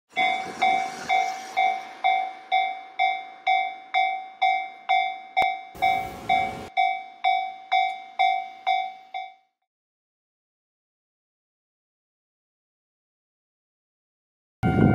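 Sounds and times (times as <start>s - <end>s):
level-crossing warning bell: 0.1s - 9.5s, 14.6s - 14.9s.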